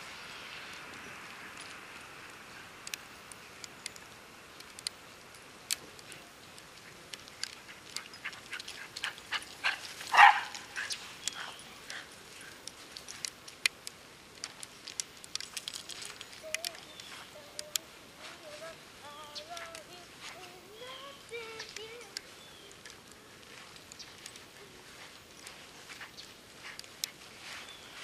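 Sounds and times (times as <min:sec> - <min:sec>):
steps crunching in snow: 0:06.0 - 0:13.5, 0:14.2 - 0:28.0
dog barking: 0:09.6 - 0:10.6.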